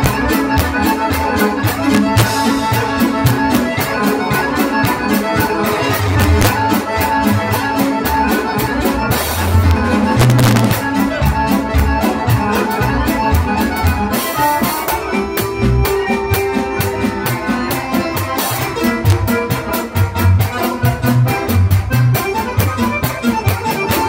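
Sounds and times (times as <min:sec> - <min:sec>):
accordion: 0:00.0 - 0:24.0
drum kit: 0:00.0 - 0:24.0.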